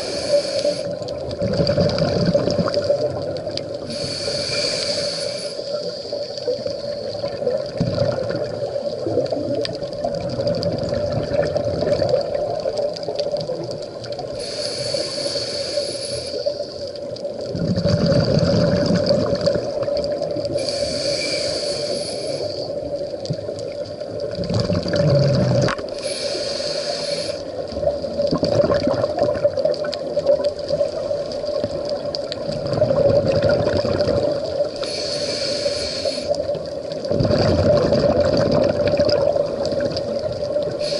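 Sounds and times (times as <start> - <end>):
regulator inhale hiss: 0.0 - 1.1, 3.8 - 7.5, 14.3 - 17.1, 20.4 - 23.0, 25.8 - 28.0, 34.6 - 36.6, 40.6 - 40.9
exhaled bubbles underwater: 0.0 - 40.9.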